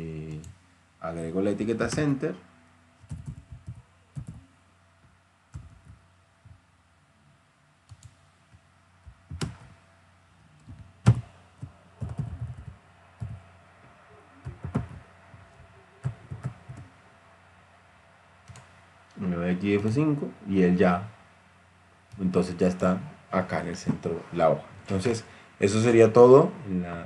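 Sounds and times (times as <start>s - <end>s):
typing on computer keyboard: 3.0s - 4.4s, 10.6s - 13.4s, 14.4s - 16.9s, 18.5s - 18.7s.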